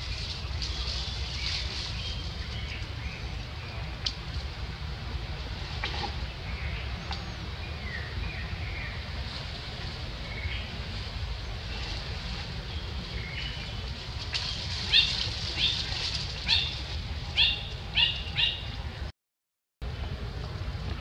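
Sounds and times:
wind rumble on microphone: 0.0s - 19.1s, 19.8s - 21.0s
bird calling: 12.6s - 18.8s.

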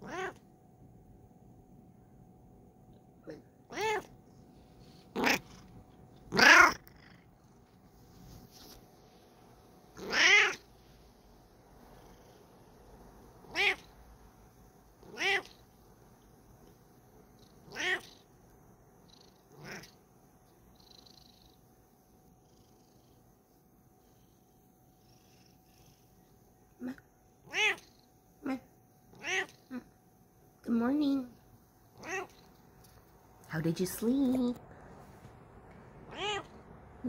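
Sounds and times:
cat meowing: 0.0s - 0.4s, 3.7s - 4.1s, 6.3s - 6.8s, 10.0s - 10.6s, 13.4s - 13.9s, 15.0s - 15.6s, 17.6s - 18.2s, 27.4s - 28.0s, 29.1s - 29.8s, 32.0s - 32.5s, 36.0s - 36.6s.

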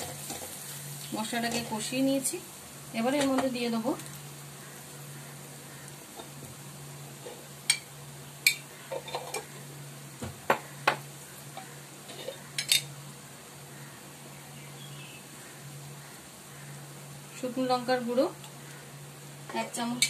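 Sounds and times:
low steady hum: 0.0s - 20.0s
kitchen utensils clinking: 7.2s - 9.5s, 11.6s - 12.9s.

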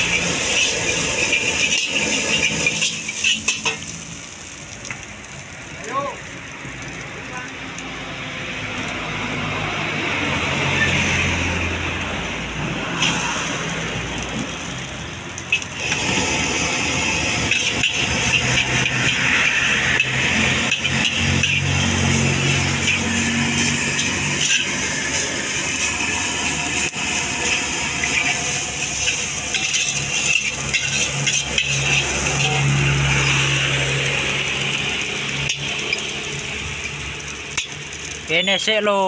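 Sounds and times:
metal spatula scraping wok: 0.0s - 4.6s, 15.4s - 38.7s
gas burner rushing: 0.0s - 39.0s
greens sizzling in hot wok: 0.0s - 39.0s.

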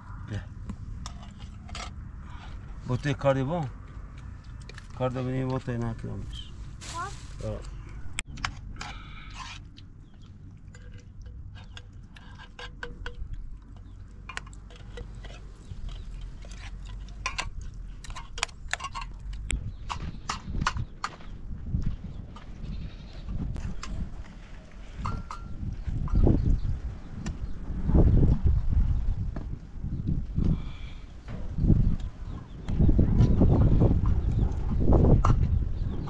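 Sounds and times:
low rumble: 0.0s - 9.2s
scattered clicks and knocks: 10.7s - 21.2s.

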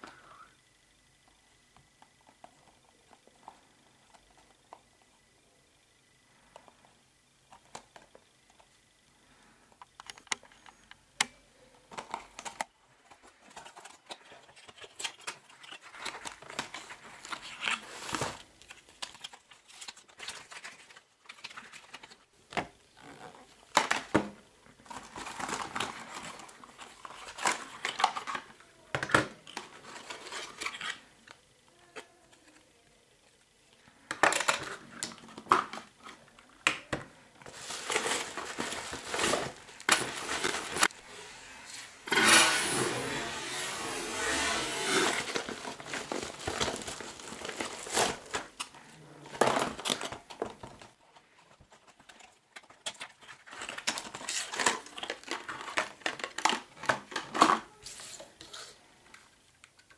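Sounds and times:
paper rustling and crinkling: 12.0s - 22.3s, 24.7s - 31.1s, 34.3s - 41.0s, 41.6s - 58.8s.

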